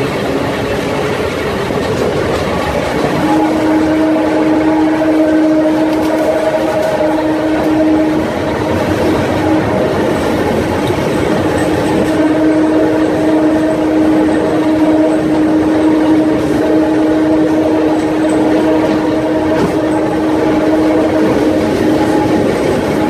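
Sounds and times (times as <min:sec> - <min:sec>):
train wheels rumbling: 0:00.0 - 0:23.0.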